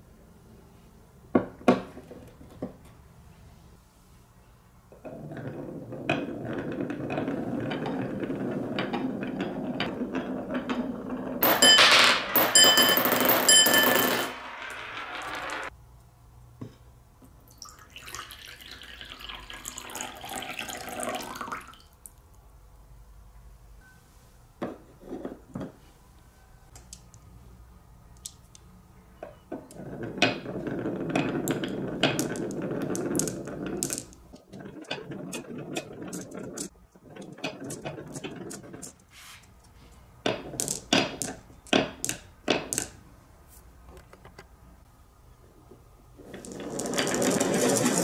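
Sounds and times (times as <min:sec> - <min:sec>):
marbles rumbling on wooden run: 0:05.2 - 0:15.7, 0:29.7 - 0:38.9, 0:46.2 - 0:48.0.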